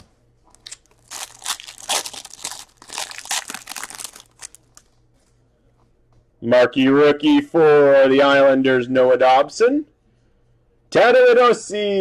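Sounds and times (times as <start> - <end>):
foil wrapper crinkling: 0.5 - 4.9.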